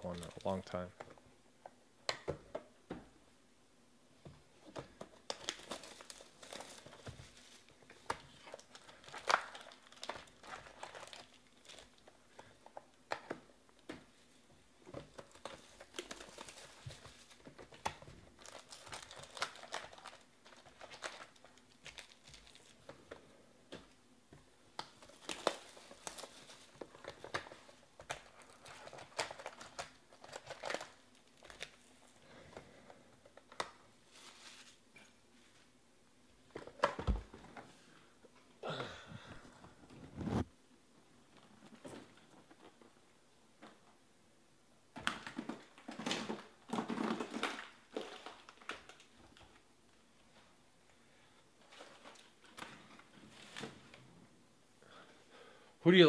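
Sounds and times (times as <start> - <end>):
plastic and foil crinkling and tearing: 0.0 - 0.9, 5.1 - 13.2, 15.0 - 23.2, 24.8 - 34.8, 45.0 - 49.6, 51.6 - 54.0.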